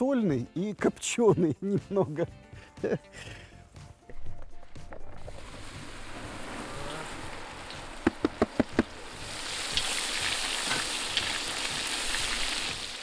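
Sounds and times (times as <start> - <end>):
mushrooms sizzling in hot oil: 5.4 - 13.0.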